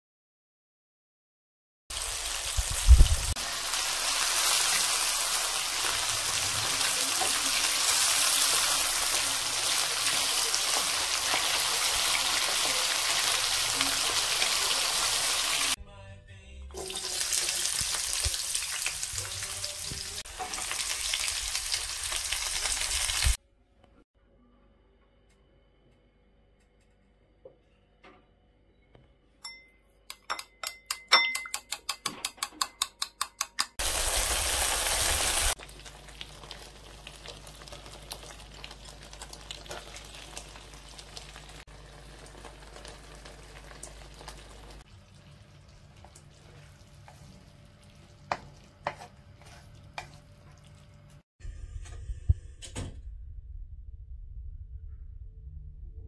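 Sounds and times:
frying sizzle and crackle: 0:01.9 - 0:15.8, 0:16.8 - 0:23.4, 0:33.8 - 0:51.3
spoon clinking against bowl: 0:29.4 - 0:33.7
wooden spatula scraping pan: 0:48.3 - 0:50.7.

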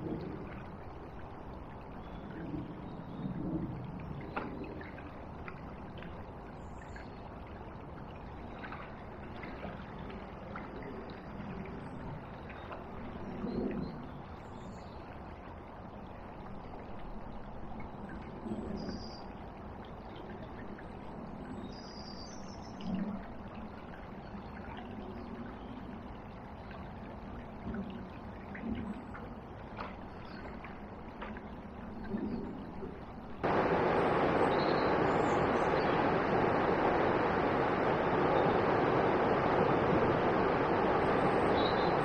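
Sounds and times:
fast floodwater rushing: 0:33.4 - 0:42.0
river water murmuring: 0:33.4 - 0:42.0.

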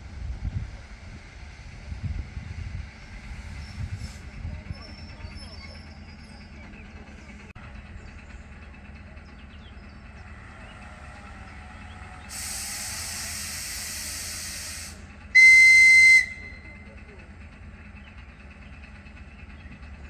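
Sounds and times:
electric train humming: 0:00.0 - 0:20.0
faint birdsong: 0:02.8 - 0:13.6, 0:16.4 - 0:20.0
compressed air hiss: 0:12.3 - 0:15.0
high-pitched train whistle: 0:12.3 - 0:16.8.

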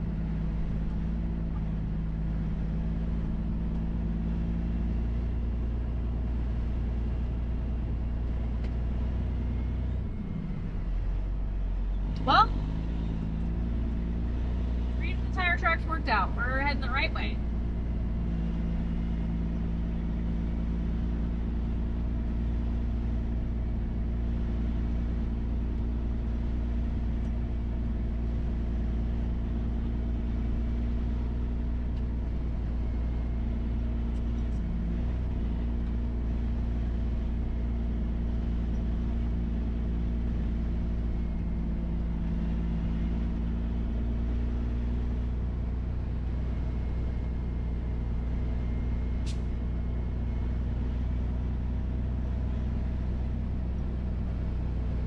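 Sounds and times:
truck diesel engine droning: 0:00.0 - 0:55.0.

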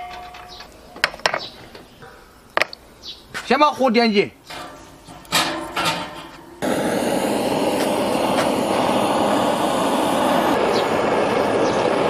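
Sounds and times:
torch flame rushing: 0:06.6 - 0:12.0.

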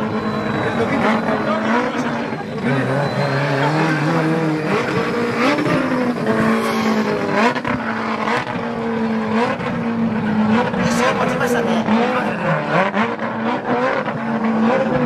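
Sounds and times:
tyre squeal: 0:00.0 - 0:08.5
rotary engine revving: 0:00.0 - 0:15.0.

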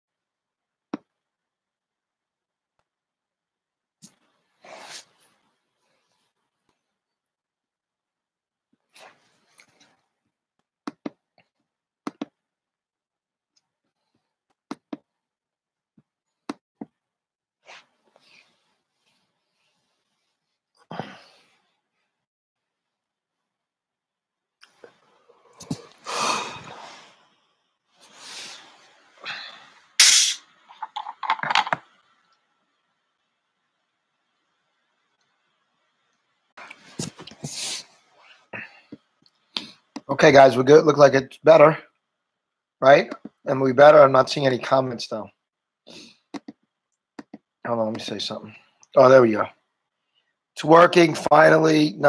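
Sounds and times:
man breathing out heavily: 0:25.4 - 0:27.2
sharp noisy burst: 0:30.0 - 0:30.4.

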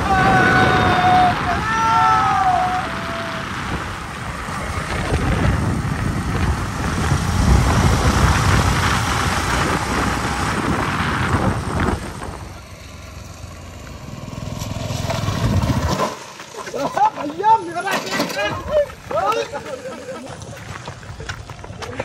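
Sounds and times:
wind buffeting microphone: 0:00.0 - 0:12.6
small motorcycle engine running: 0:03.0 - 0:16.6.

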